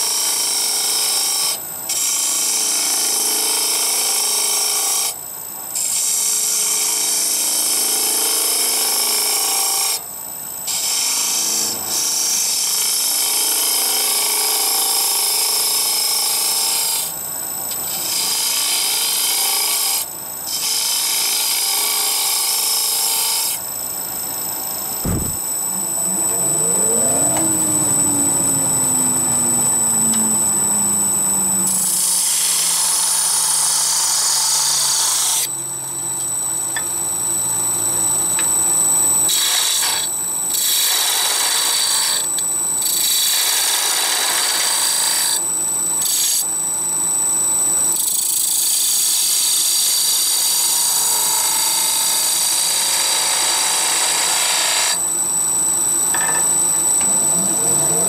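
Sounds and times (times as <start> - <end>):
wood lathe whining: 0.0 - 5.1, 10.7 - 17.1, 17.9 - 46.4, 47.9 - 58.0.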